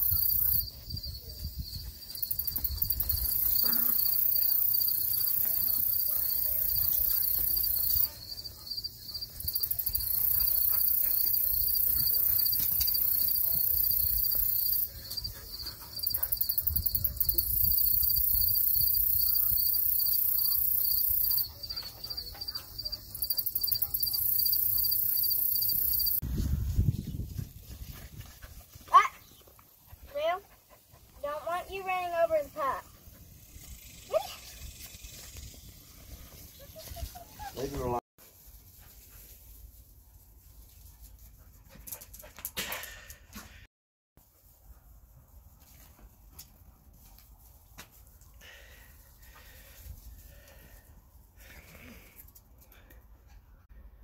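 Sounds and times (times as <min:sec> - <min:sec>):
high-pitched insect buzz: 0:00.0 - 0:08.8
crickets chirping: 0:00.0 - 0:26.2.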